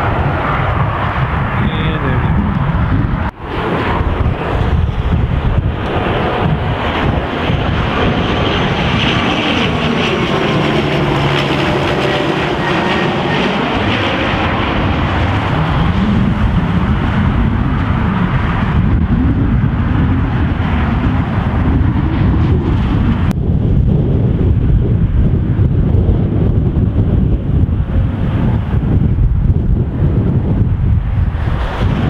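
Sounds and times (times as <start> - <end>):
turboprop propeller drone: 0.0 - 32.0
wind rumbling on microphone: 0.0 - 32.0.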